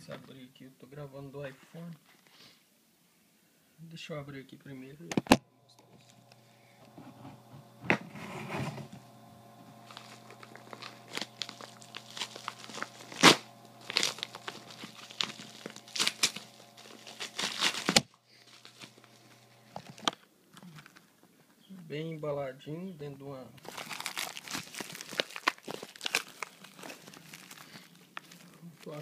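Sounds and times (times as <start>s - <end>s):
bubble mailer tearing open: 5.8s - 21.1s, 23.6s - 29.0s
paper and plastic crinkling: 5.8s - 21.5s, 23.6s - 29.0s.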